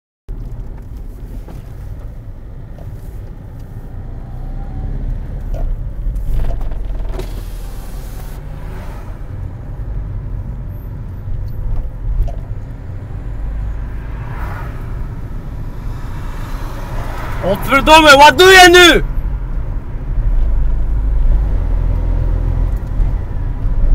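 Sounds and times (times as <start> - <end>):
car engine and tyres rumbling: 0.3 - 23.9
car passing close by: 7.2 - 10.9, 12.8 - 18.1.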